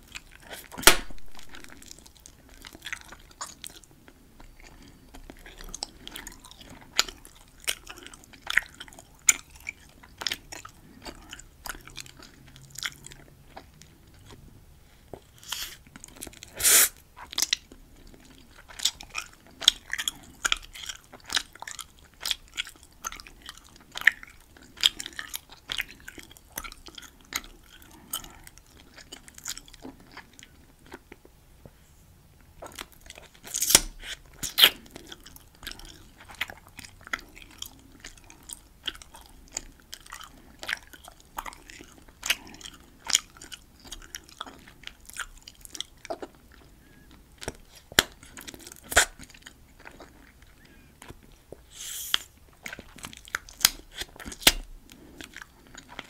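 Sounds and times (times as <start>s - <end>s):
gum chewing clicks and snaps: 0.0s - 14.5s, 15.1s - 31.4s, 32.4s - 56.0s
bubble gum snaps: 0.8s - 1.5s.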